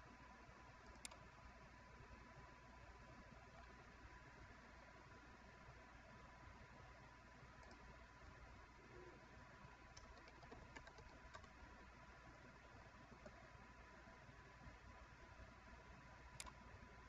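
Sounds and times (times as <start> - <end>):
faint steady hiss: 0.0 - 17.0
faint keyboard typing: 0.8 - 1.3, 7.5 - 8.4, 9.8 - 13.6, 16.3 - 16.7.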